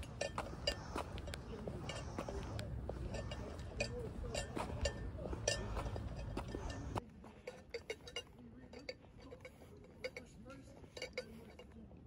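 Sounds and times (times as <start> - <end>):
footsteps on pavement: 0.0 - 7.5
glass tumbler clinks: 0.0 - 11.8
low outdoor rumble: 0.0 - 12.0.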